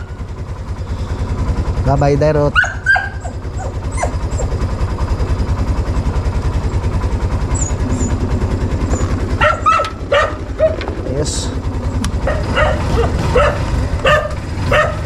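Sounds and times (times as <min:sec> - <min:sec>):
motorcycle engine idling: 0:00.0 - 0:15.0
dog barking: 0:02.5 - 0:04.4, 0:09.3 - 0:10.8, 0:12.2 - 0:15.0.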